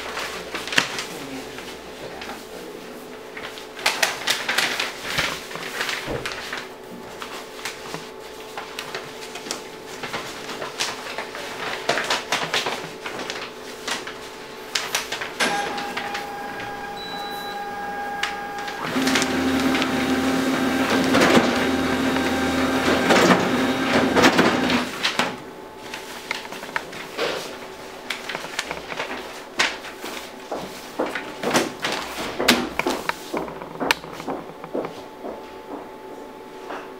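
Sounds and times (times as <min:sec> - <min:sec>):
paper rustling and sliding: 0:03.4 - 0:34.4
paper clicks: 0:08.6 - 0:27.4
folding machine humming: 0:15.2 - 0:25.7.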